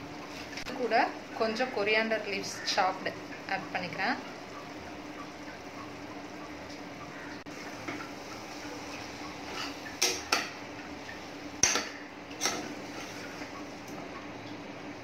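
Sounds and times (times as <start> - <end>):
ladle clanking on pot: 11.6 - 13.2
metal ladle scraping pot: 11.6 - 13.6.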